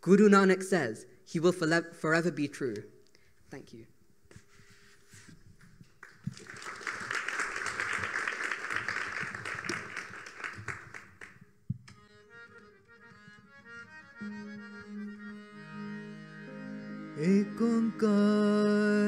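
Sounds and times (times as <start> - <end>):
audience clapping: 5.9 - 11.5
harmonium chords: 11.9 - 19.0.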